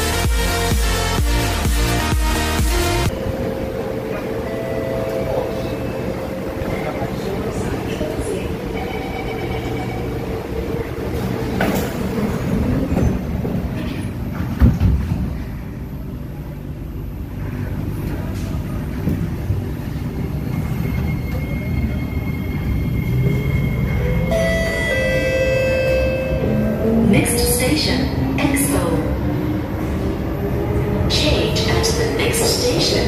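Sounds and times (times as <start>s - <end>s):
train low rumble: 2.7s - 33.0s.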